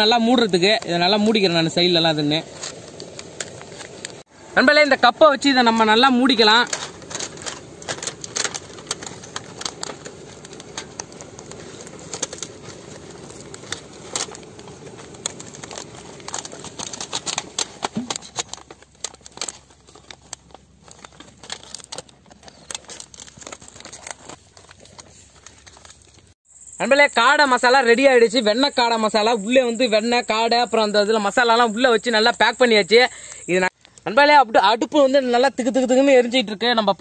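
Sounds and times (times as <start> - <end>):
aluminium foil trays crinkling: 0.0 - 26.4.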